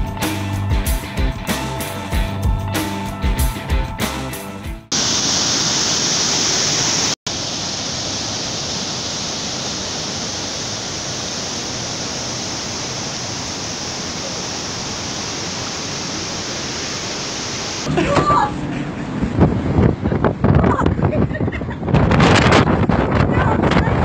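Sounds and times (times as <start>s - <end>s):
guitar music: 0.0s - 4.9s
floodwater rushing: 4.9s - 18.7s.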